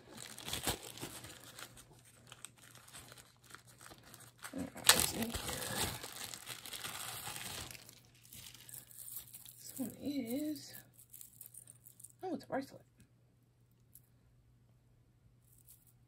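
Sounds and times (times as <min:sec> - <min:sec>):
plastic bag crinkling: 0:00.0 - 0:12.2.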